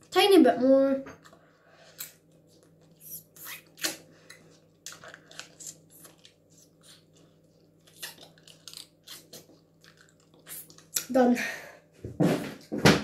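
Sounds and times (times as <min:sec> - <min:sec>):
wet mouth clicks: 0:02.0 - 0:07.2, 0:07.9 - 0:11.1.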